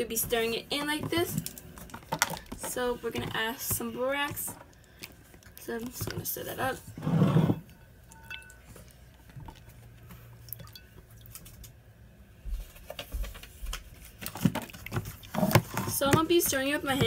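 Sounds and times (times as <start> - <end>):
slime squelching: 0.0 - 7.0.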